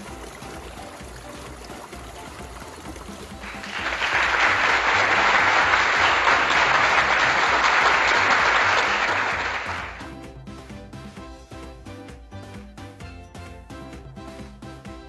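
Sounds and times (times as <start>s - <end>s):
creek water over rocks: 0.0s - 4.2s.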